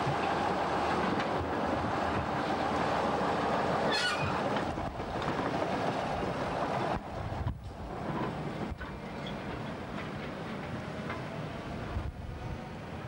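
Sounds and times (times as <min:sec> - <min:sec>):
diesel locomotive engine: 0:00.0 - 0:13.0
high squeal: 0:03.9 - 0:04.4.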